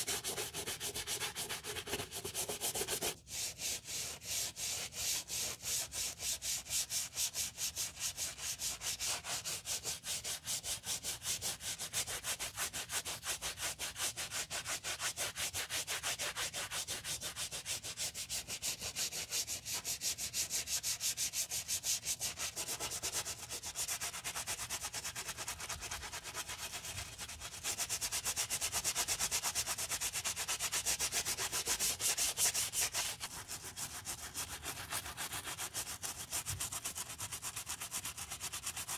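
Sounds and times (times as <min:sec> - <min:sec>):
brush scrubbing shoe sole: 0:00.0 - 0:11.0, 0:17.0 - 0:38.9.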